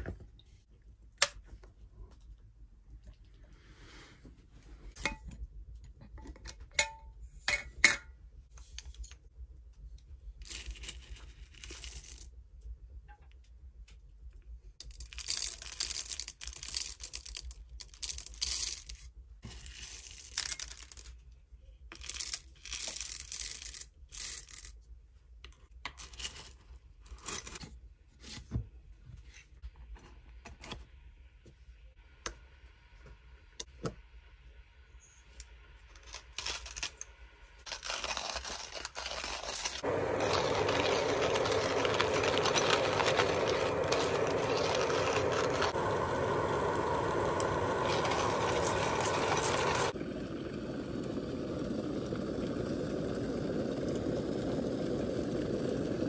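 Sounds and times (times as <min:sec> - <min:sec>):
coffee beans rattling into metal hopper: 0:37.7 - 0:45.8, 0:47.4 - 0:50.0.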